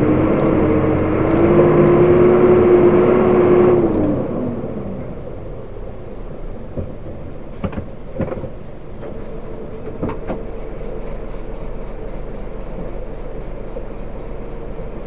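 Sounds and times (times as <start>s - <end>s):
diesel engine idling: 0.0s - 15.0s
gear lever clunks and knocks: 6.7s - 9.2s.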